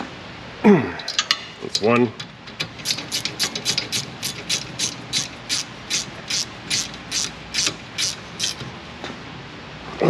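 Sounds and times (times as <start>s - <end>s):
hand ratchet clicking: 2.8s - 8.7s.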